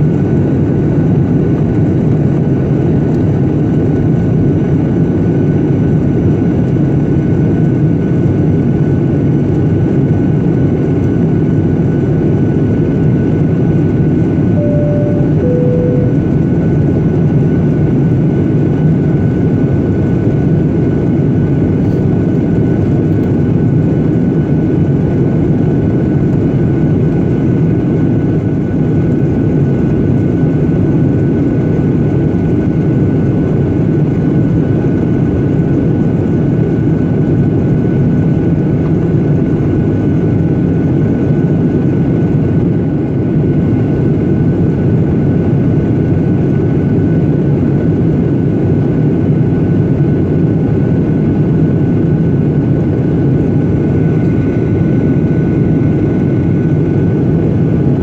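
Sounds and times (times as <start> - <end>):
jet engine and airflow noise: 0.0 - 58.0
two-note cabin chime: 14.6 - 16.6
faint high whine: 14.6 - 16.7.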